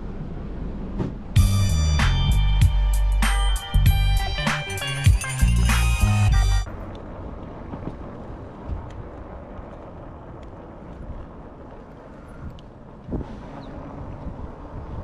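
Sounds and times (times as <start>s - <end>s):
bike tyres rolling on pavement: 6.6s - 15.0s
wind buffeting microphone: 6.7s - 15.0s.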